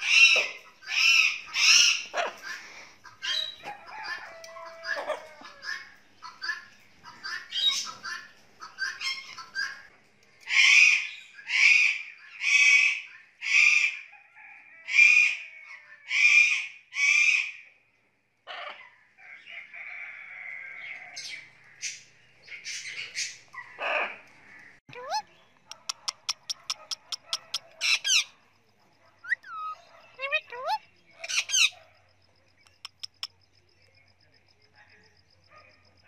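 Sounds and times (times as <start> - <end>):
parrot calls: 0.0 - 9.9, 24.9 - 28.3, 29.2 - 31.8, 32.6 - 33.3
parrot chirps: 24.9 - 28.3, 29.2 - 31.8, 32.6 - 33.4.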